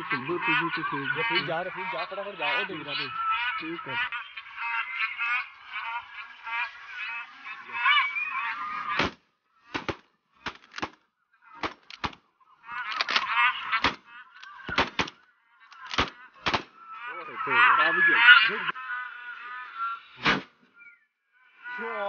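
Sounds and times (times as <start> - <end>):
geese honking: 0.0 - 22.0
shotgun bangs: 9.0 - 11.0, 13.8 - 14.0, 14.7 - 15.2, 15.9 - 16.8.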